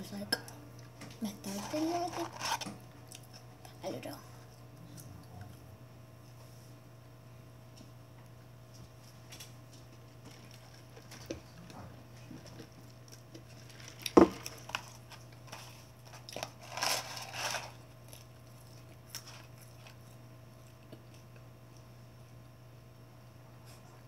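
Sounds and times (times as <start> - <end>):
steady low hum: 0.0 - 24.0
papery rustling: 1.5 - 2.8, 13.5 - 17.8.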